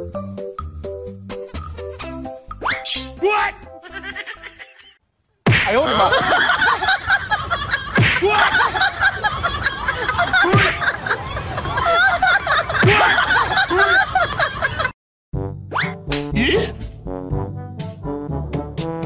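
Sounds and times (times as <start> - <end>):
crowd laughing: 5.8 - 15.0.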